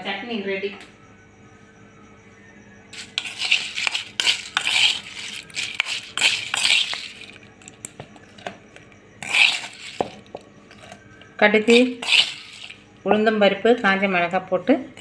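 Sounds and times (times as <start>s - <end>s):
metal utensil scraping steel pot: 3.0s - 7.4s, 9.2s - 11.0s, 11.6s - 12.8s.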